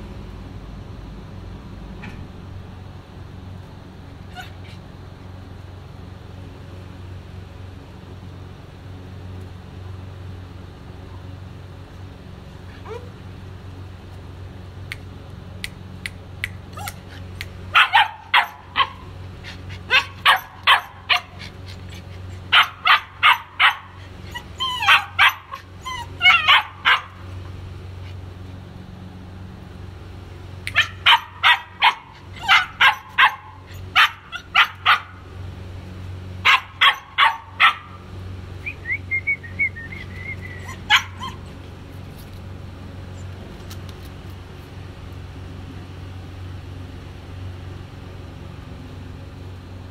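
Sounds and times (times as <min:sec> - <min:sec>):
puppy yapping: 0:04.3 - 0:04.8, 0:12.7 - 0:13.2, 0:16.7 - 0:27.4, 0:30.6 - 0:35.3, 0:36.4 - 0:38.1, 0:39.9 - 0:41.6
puppy whining: 0:04.3 - 0:04.9, 0:12.7 - 0:13.2, 0:16.7 - 0:27.2, 0:30.7 - 0:35.2, 0:39.5 - 0:41.7.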